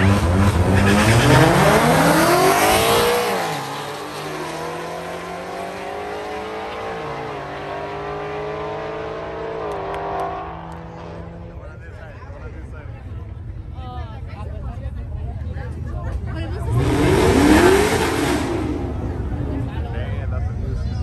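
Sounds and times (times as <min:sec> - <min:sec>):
race car engine accelerating: 0:00.0 - 0:11.7, 0:16.4 - 0:20.4.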